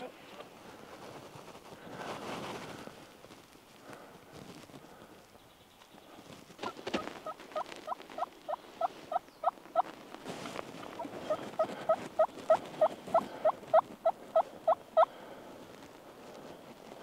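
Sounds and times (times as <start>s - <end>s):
wild turkey hen yelping: 6.6s - 10.0s, 10.8s - 15.2s.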